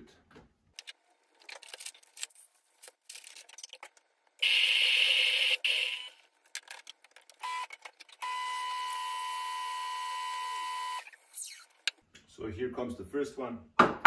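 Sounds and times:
coffee grinder grinding beans: 4.4 - 6.1.

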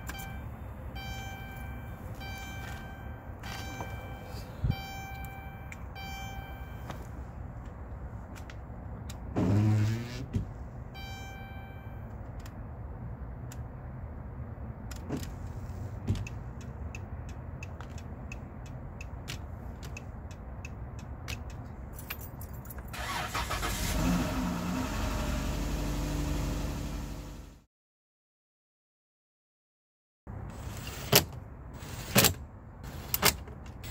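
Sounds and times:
turn signal ticking: 0.0 - 7.8, 16.0 - 21.9
van engine cranking and idling: 22.8 - 27.6.

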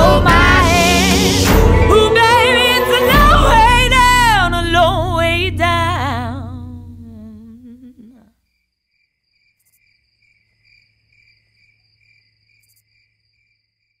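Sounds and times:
crickets chirping: 8.5 - 14.0.

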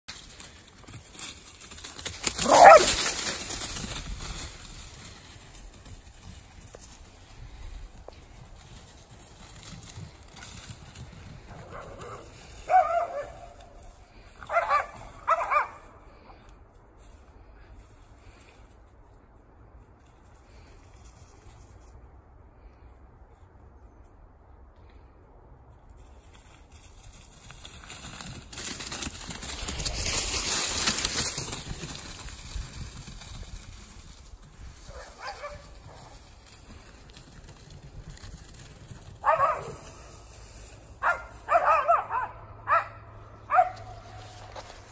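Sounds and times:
paws rustling through dry leaves: 0.1 - 16.3, 26.0 - 42.0
dog yelping barks: 2.4 - 3.0, 39.2 - 39.8, 41.0 - 43.8.

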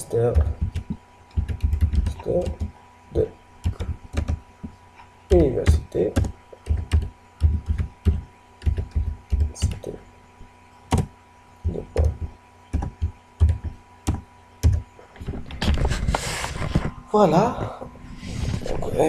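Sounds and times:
computer keyboard keystrokes: 0.3 - 2.7, 3.6 - 4.4, 5.3 - 9.8, 12.8 - 14.8.

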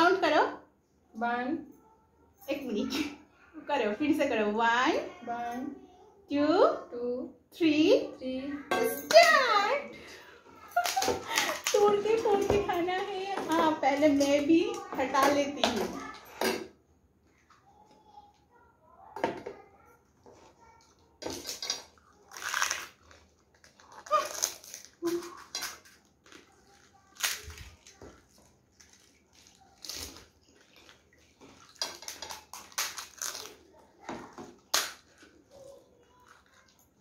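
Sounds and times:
crisp shells cracking and crunching: 21.3 - 33.9.

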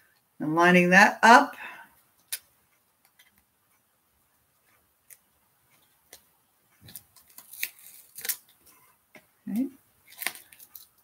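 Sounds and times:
faint clicks and taps: 2.0 - 7.4.

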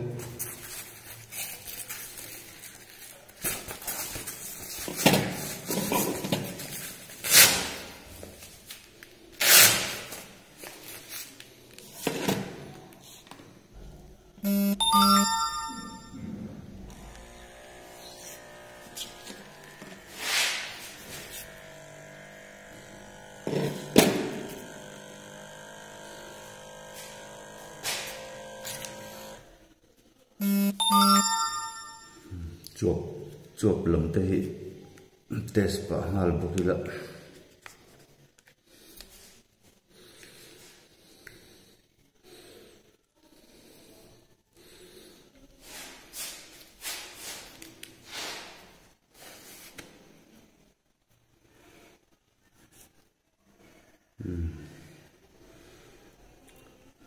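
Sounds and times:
velcro strap ripping: 7.2 - 7.9, 9.4 - 10.3
small electric pump humming: 16.7 - 29.6.

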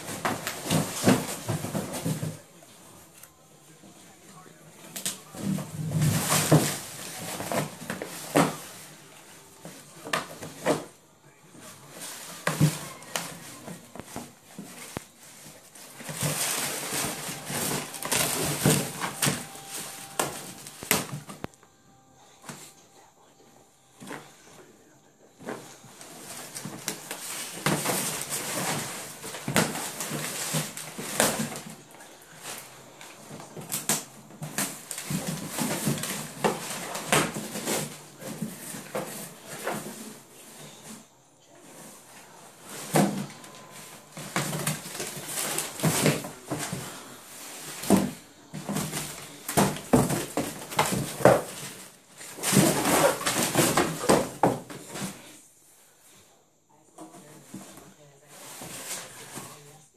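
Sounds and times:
cardboard box scraping on tile: 0.0 - 2.4, 11.8 - 21.4, 25.4 - 55.4, 57.2 - 59.8
dog scuffling: 0.0 - 2.9, 4.8 - 10.9, 11.6 - 21.4, 25.4 - 41.0, 41.7 - 55.3.

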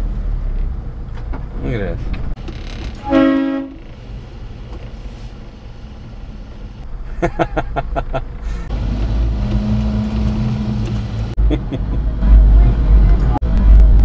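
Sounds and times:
road noise: 0.0 - 14.0
two-tone vehicle horn toot: 3.0 - 3.8.

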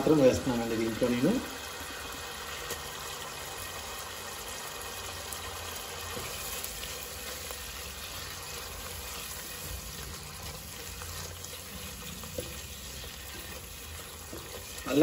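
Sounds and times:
prawns sizzling in a pan: 0.0 - 15.0
spatula stirring: 5.8 - 15.0.

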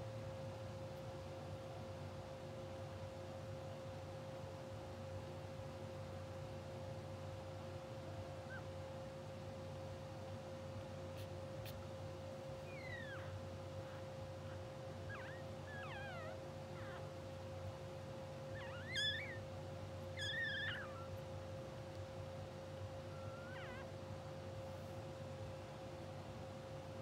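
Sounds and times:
steady hum: 0.0 - 27.0
puppies squeaking: 12.5 - 17.6, 18.2 - 21.4, 22.9 - 24.0.

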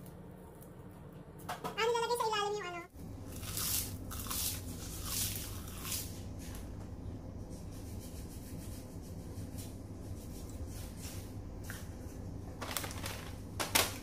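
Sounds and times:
steady low hum: 0.0 - 14.0
crispy seaweed crunching: 3.2 - 6.6, 12.6 - 14.0.

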